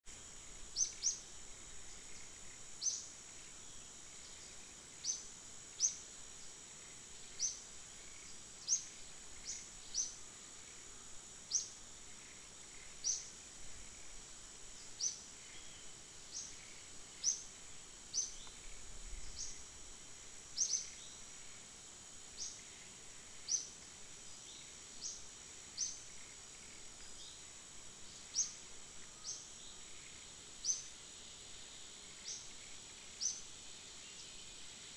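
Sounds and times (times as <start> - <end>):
high-pitched insect drone: 0.1 - 34.9.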